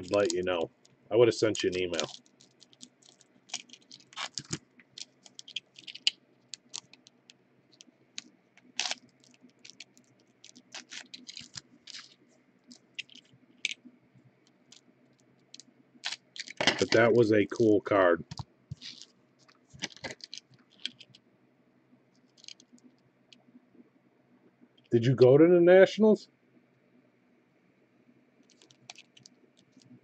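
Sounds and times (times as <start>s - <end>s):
foil card pack crinkling: 0.0s - 0.6s, 1.2s - 13.8s, 15.5s - 21.2s, 22.2s - 22.9s, 28.4s - 30.0s.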